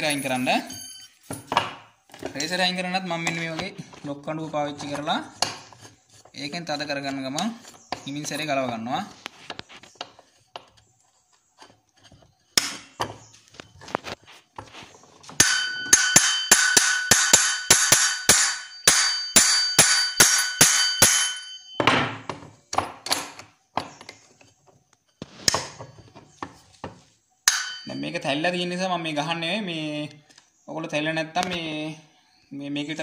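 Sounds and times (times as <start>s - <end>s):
metallic ring: 0.0s - 1.5s, 15.4s - 22.1s, 27.4s - 28.2s
hammer striking metal: 15.4s - 22.1s, 27.4s - 28.1s.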